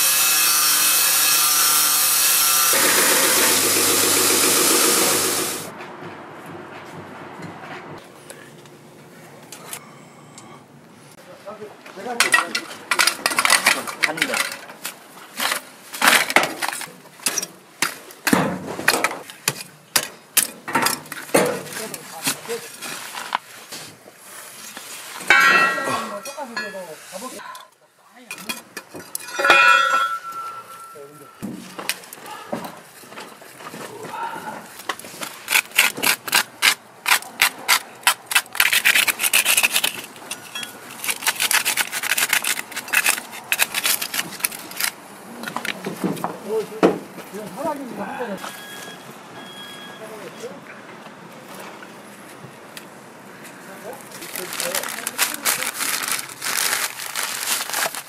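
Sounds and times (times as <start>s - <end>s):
fingers scraping rust off knife blade: 35.5s - 44.9s.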